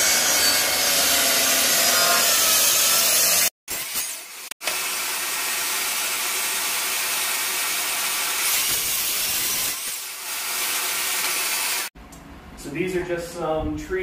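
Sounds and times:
miter saw cutting wood: 0:00.0 - 0:08.9.

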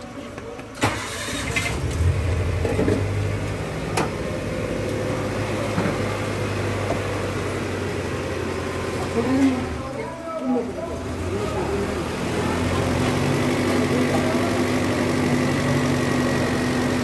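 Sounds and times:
car engine starting and idling: 0:00.7 - 0:17.0.

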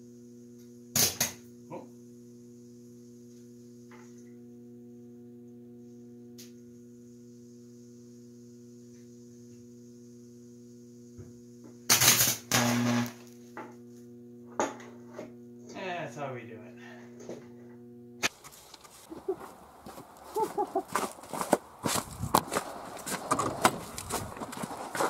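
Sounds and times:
transformer mains hum: 0:00.0 - 0:25.0
electric arc crackling: 0:11.9 - 0:13.5.

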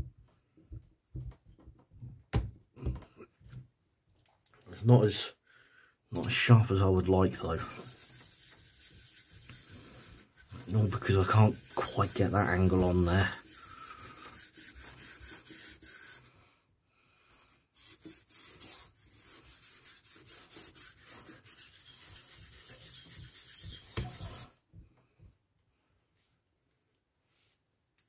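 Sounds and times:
knife scraping on whetstone: 0:07.5 - 0:16.3, 0:17.4 - 0:24.5.

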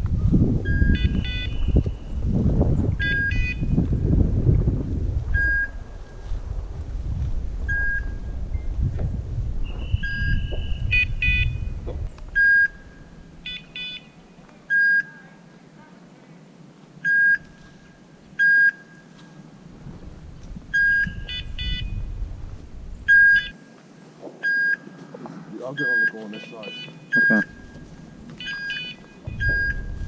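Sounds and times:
beeper collar beeping: 0:00.6 - 0:02.2, 0:03.0 - 0:03.8, 0:09.7 - 0:15.2, 0:17.0 - 0:17.5, 0:20.7 - 0:22.1, 0:23.1 - 0:23.6, 0:24.4 - 0:24.9, 0:25.7 - 0:30.0
chirping electronic tones: 0:00.6 - 0:02.2, 0:02.9 - 0:03.8, 0:09.6 - 0:15.2, 0:20.7 - 0:22.2, 0:23.0 - 0:23.7, 0:24.4 - 0:24.9, 0:25.7 - 0:30.0
footsteps in dry grass and leaves: 0:03.8 - 0:09.9, 0:22.0 - 0:23.0, 0:26.2 - 0:30.0.

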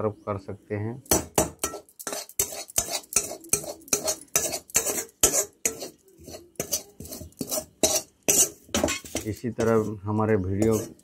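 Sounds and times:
steel ladle clinking on metal pan: 0:01.1 - 0:09.7.

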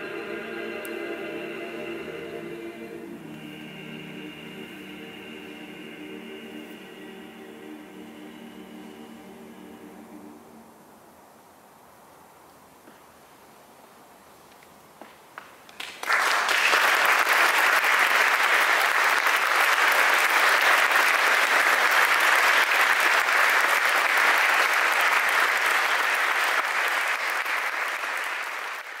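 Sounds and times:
audience applauding: 0:15.7 - 0:29.0.

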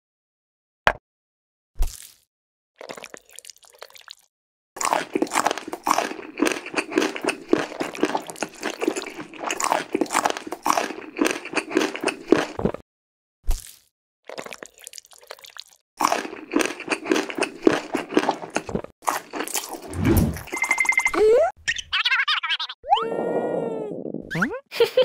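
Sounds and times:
food crunching and squishing: 0:02.8 - 0:12.8, 0:13.5 - 0:20.0.

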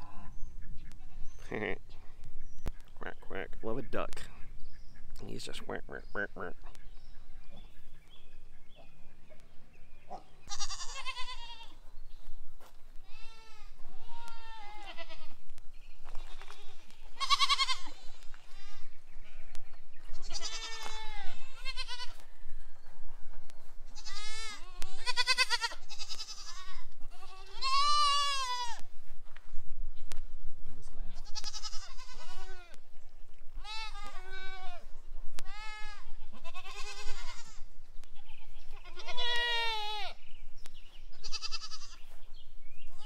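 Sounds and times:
goats bleating: 0:10.5 - 0:11.8, 0:13.1 - 0:15.4, 0:16.1 - 0:19.4, 0:20.2 - 0:22.2, 0:24.0 - 0:28.8, 0:31.2 - 0:32.8, 0:33.6 - 0:34.8, 0:35.4 - 0:40.2, 0:41.2 - 0:42.0.

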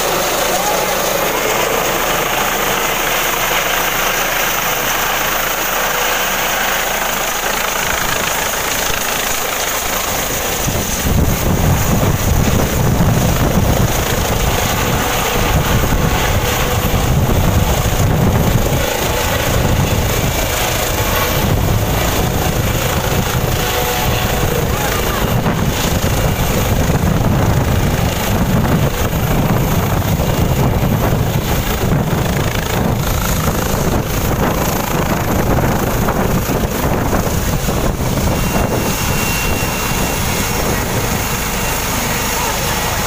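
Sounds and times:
helicopter engines and rotors: 0:00.0 - 0:43.0
gusty low rumble of rotor wash: 0:08.8 - 0:43.0.

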